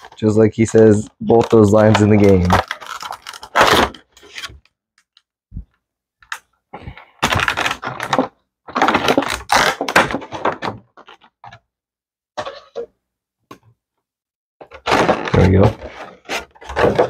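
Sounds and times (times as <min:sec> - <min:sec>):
plastic crackling and rubbing: 0:00.0 - 0:04.7, 0:07.2 - 0:11.7, 0:14.6 - 0:17.0.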